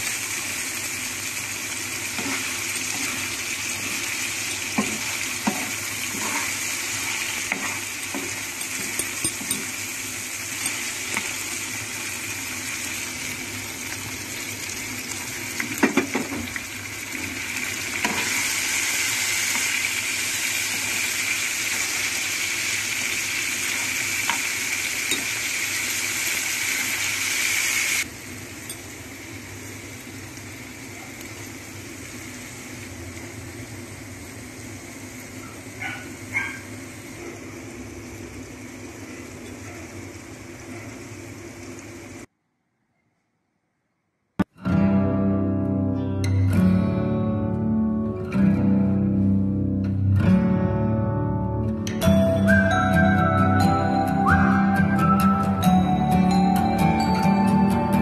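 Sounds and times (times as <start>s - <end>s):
chicken sizzling in oil: 0.0s - 42.3s.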